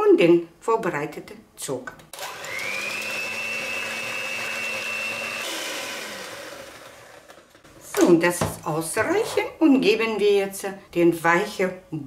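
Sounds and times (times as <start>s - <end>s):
electric hand mixer whine: 2.2s - 7.6s.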